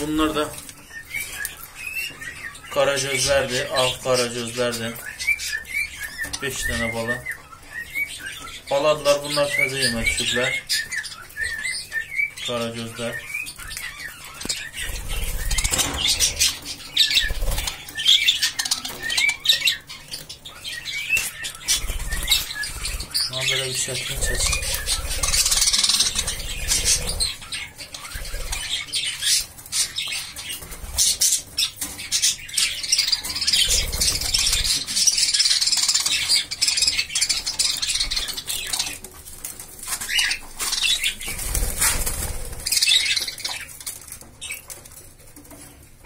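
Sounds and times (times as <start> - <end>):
budgerigars chirping: 0.0 - 44.9
wings fluttering: 14.2 - 19.2, 21.2 - 32.0, 33.0 - 36.6, 37.2 - 45.8.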